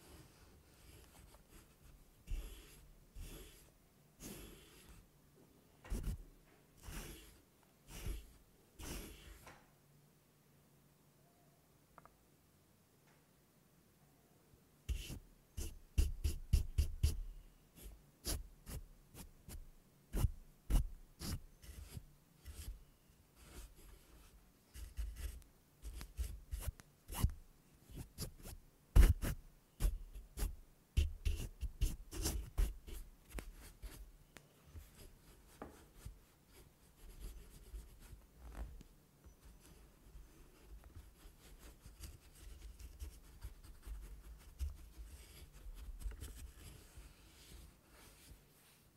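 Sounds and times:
brush scratching on microphone: 39.3s - 48.7s.

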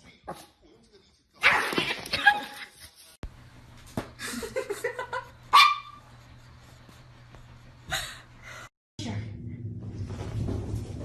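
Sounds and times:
dog barking: 5.5s - 6.0s.

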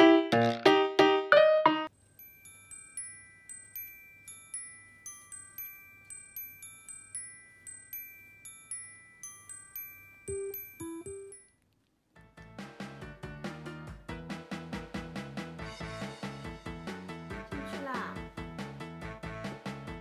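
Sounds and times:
soft chiming background music: 2.0s - 11.6s.

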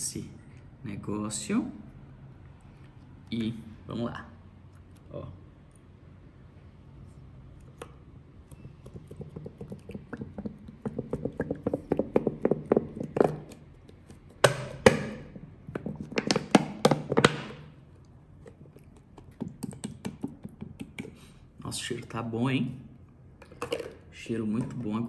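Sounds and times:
liquid soap glugging from bottle: 8.6s - 13.2s.

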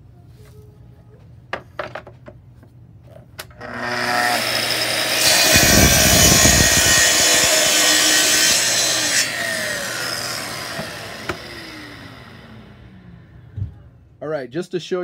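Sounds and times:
track saw cutting board: 3.6s - 13.0s
saw motor winding down: 3.6s - 13.5s.

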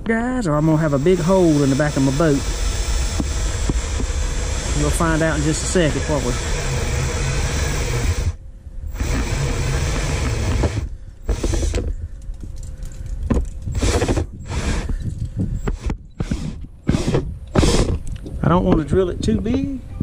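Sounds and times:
electric drill boring through plastic: 0.6s - 11.9s, 13.7s - 18.1s.

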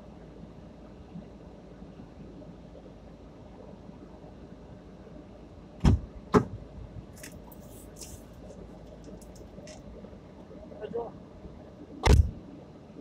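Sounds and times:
car cabin hum: 5.7s - 13.0s.

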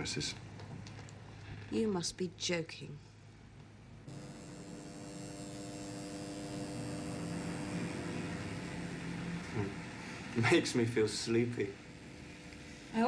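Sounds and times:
steady hum with held tones: 0.0s - 13.0s.

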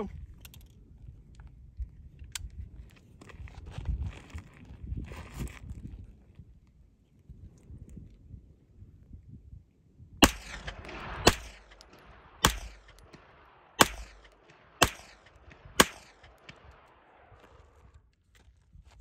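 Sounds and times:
gunshots with echo: 10.2s - 17.6s.

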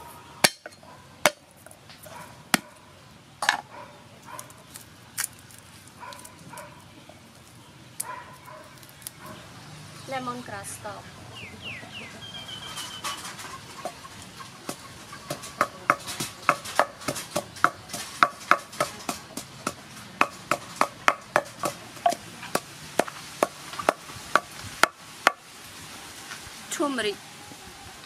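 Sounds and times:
wooden pestle pounding in mortar: 14.7s - 25.4s.

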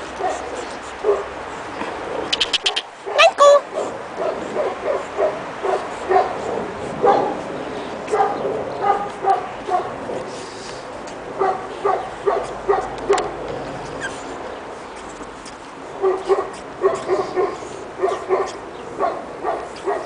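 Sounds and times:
puppies yapping: 2.2s - 10.0s, 11.4s - 20.0s.

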